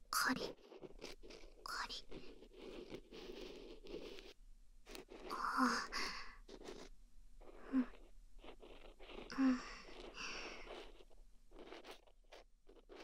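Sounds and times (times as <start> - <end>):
ear pick scratching in ear: 0.3 - 5.3, 7.5 - 13.0
breathy sounds: 9.3 - 10.7.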